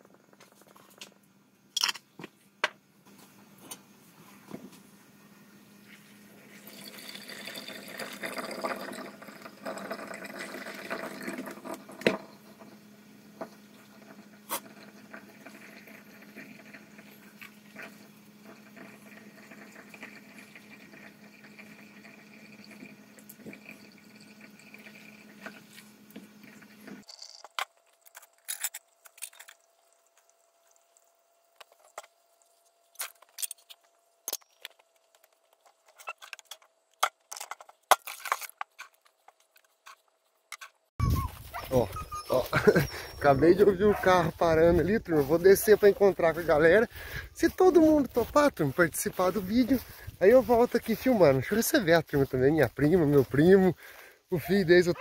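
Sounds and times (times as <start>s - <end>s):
water heating in a pot: 5.6s - 36.6s.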